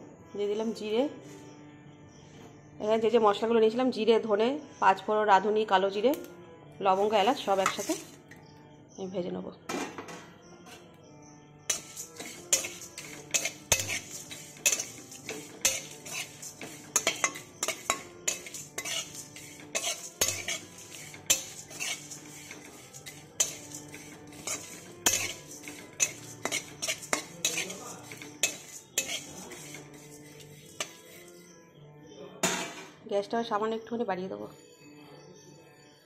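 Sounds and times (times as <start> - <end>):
metal spatula scraping pan: 6.9 - 8.4, 11.7 - 31.6
seeds rattling in pan: 7.0 - 8.2, 11.7 - 31.3.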